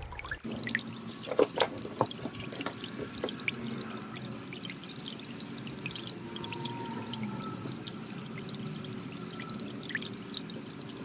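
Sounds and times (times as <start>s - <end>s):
soft tinkling background music: 6.1s - 11.0s.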